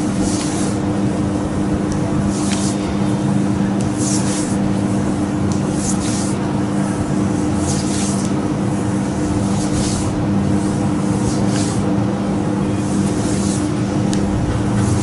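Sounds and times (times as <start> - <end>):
steady low hum: 0.0 - 15.0
hands swishing over skin: 2.2 - 2.8, 3.8 - 4.6, 5.5 - 6.4, 7.6 - 8.4, 9.4 - 10.2, 11.1 - 11.9, 13.0 - 13.7.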